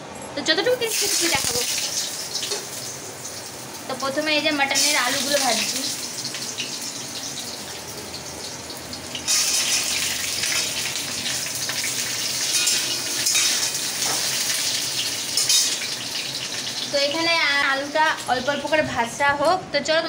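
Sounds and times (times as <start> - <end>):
potatoes sizzling in hot oil: 0.7 - 18.8.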